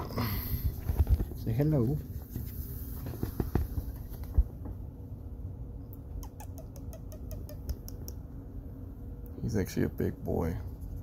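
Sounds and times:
animal rustling and bumping: 0.7s - 4.9s.

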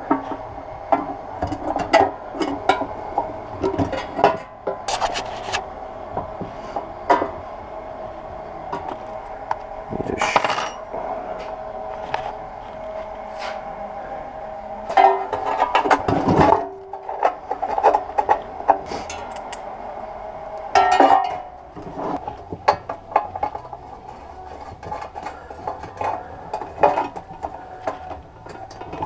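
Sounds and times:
metal scrape: 4.9s - 5.6s, 14.9s - 19.5s.

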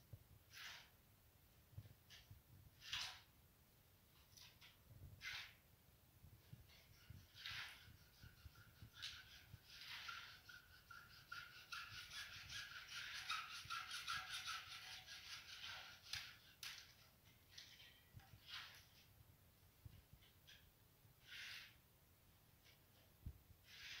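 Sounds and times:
hacksaw cutting plastic pipe: 6.7s - 18.8s.

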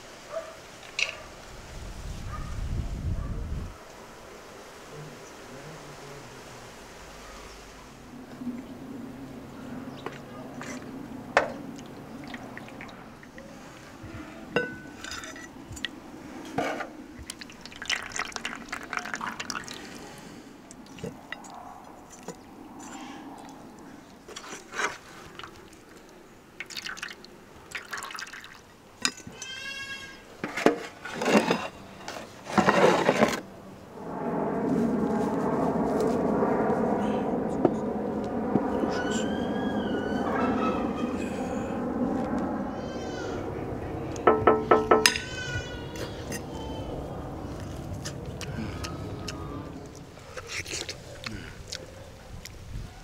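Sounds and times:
liquid pouring into vessel: 17.2s - 20.0s, 26.6s - 28.7s.

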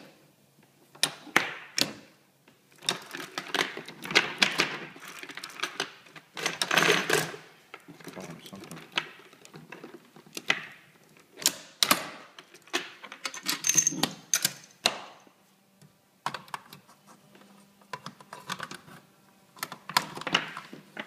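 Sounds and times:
plastic parts and cartridges clicking: 17.8s - 19.0s, 19.6s - 21.0s.

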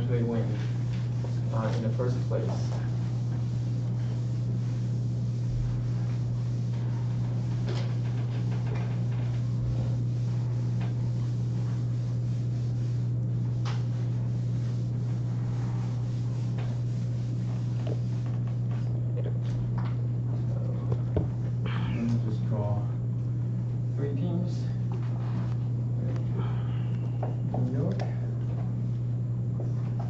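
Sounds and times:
eraser rubbing on whiteboard: 0.2s - 18.4s.

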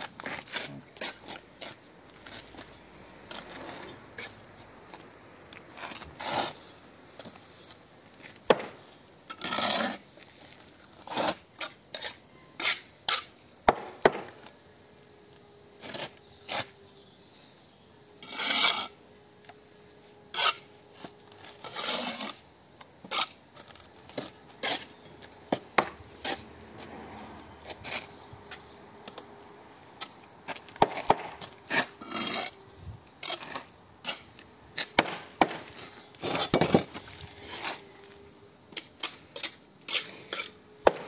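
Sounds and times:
trowel scraping mortar: 5.7s - 7.8s, 9.3s - 13.4s, 15.8s - 16.8s, 18.2s - 19.0s, 20.3s - 22.4s, 23.0s - 26.9s, 30.0s - 32.6s, 33.2s - 35.0s, 35.7s - 38.0s, 38.7s - 40.6s.

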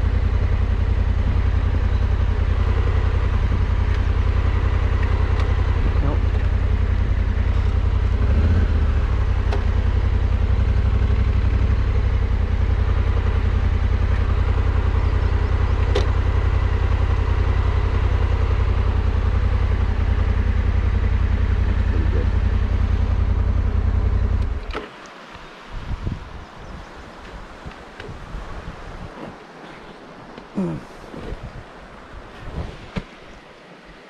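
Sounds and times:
motorcycle engine idling: 0.0s - 24.7s.

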